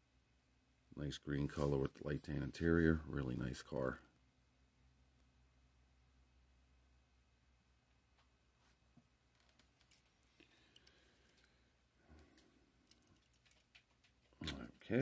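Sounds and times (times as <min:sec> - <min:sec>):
faint clicks: 0:09.3 - 0:14.8.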